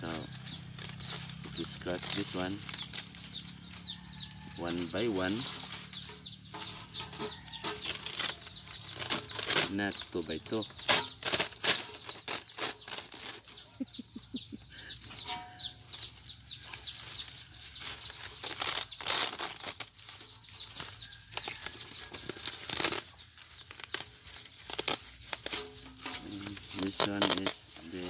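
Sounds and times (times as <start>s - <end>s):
circuit board crackling and snapping: 18.4s - 19.9s, 23.7s - 27.6s.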